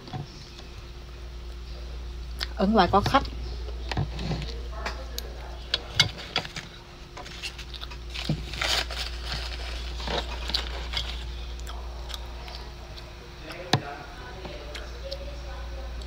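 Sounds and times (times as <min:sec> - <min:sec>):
steady low hum: 0:00.0 - 0:16.0
chewing: 0:04.1 - 0:13.7.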